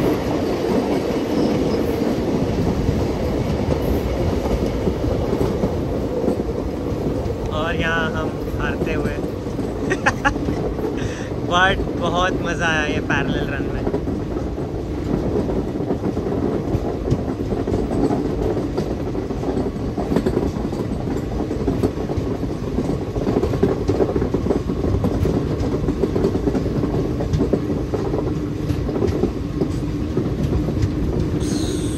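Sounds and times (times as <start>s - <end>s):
train coaches rumbling: 0.0s - 31.9s
wheels clacking over rail joints: 0.0s - 31.9s.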